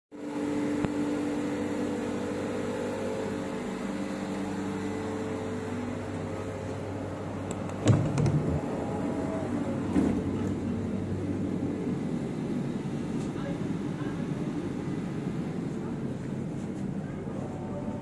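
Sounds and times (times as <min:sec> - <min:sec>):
train ventilation hum: 0:00.2 - 0:18.0
loud knock: 0:07.8 - 0:08.6.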